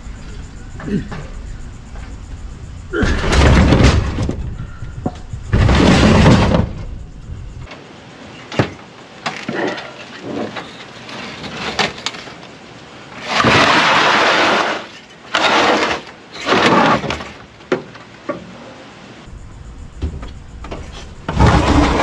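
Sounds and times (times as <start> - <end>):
heavy unit scraping on truck bed: 3.0 - 7.3, 13.2 - 17.4, 20.6 - 22.0
clunks: 3.0 - 7.8, 19.9 - 22.0.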